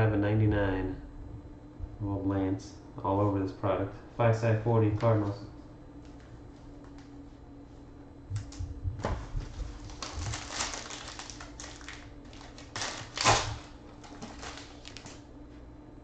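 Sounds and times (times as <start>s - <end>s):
foil wrapper tearing and crinkling: 9.4s - 15.2s.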